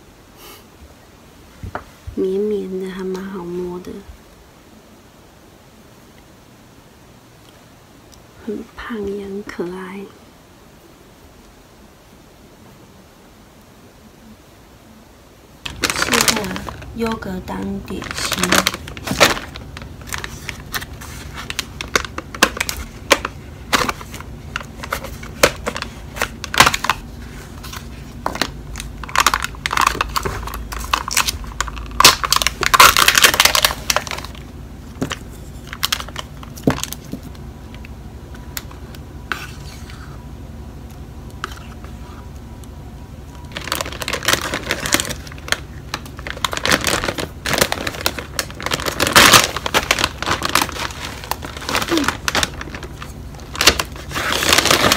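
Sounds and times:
plastic bag crinkling: 15.6s - 40.1s, 43.3s - 54.9s
food packaging crinkling: 15.6s - 40.2s, 40.9s - 42.0s, 43.3s - 54.9s.

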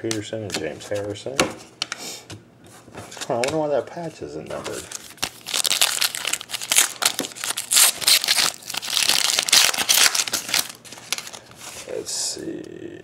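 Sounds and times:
foil wrapper crackling: 4.6s - 11.8s.

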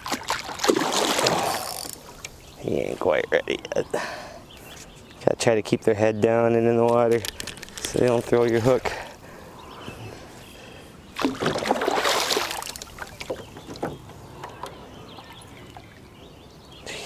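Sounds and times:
fish splashing water: 0.0s - 2.2s, 11.2s - 13.4s.

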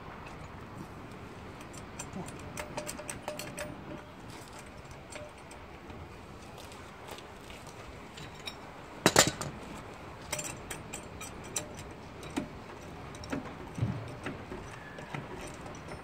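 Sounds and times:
metal jack clanking and clicking: 1.6s - 5.7s, 8.2s - 9.6s, 10.3s - 16.0s.

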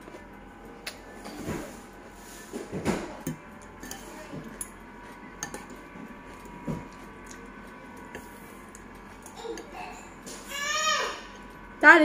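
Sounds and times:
cutlery clinking on ceramic bowl: 5.4s - 5.8s.

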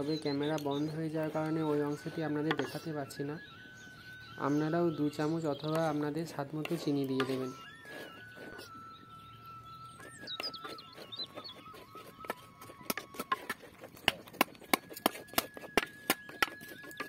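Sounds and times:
spatula scraping clay pot: 0.0s - 8.9s, 9.8s - 17.0s
faint high tone: 1.4s - 13.6s.

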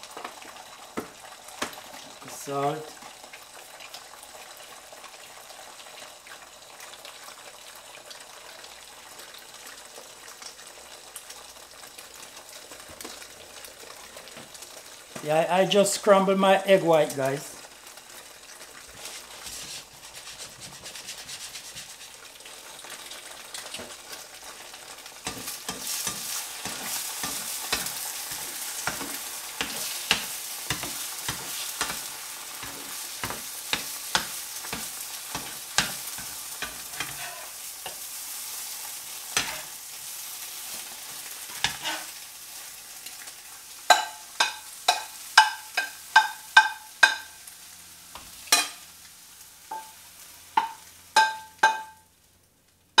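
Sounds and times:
egg whites sizzling in a frying pan: 0.0s - 53.0s
fork scraping against a pan: 19.0s - 22.2s, 25.2s - 38.0s, 39.4s - 39.7s, 41.5s - 42.2s.

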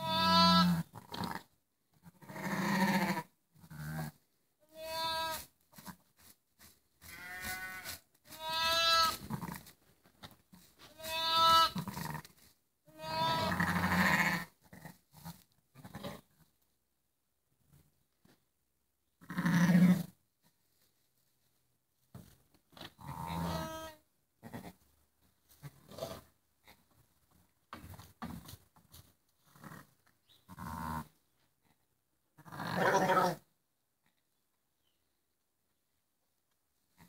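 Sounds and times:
sheep bleating: 0.0s - 1.4s, 2.0s - 4.0s, 4.7s - 5.4s, 7.1s - 9.6s, 11.0s - 12.3s, 12.9s - 14.5s, 23.0s - 24.8s, 32.4s - 33.4s.

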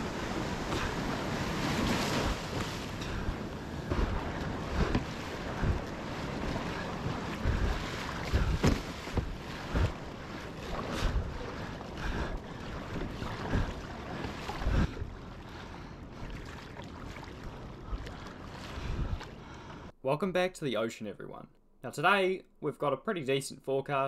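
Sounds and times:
wind buffeting microphone: 0.0s - 16.3s, 17.2s - 19.6s
water splashing against kayak: 0.0s - 19.9s.

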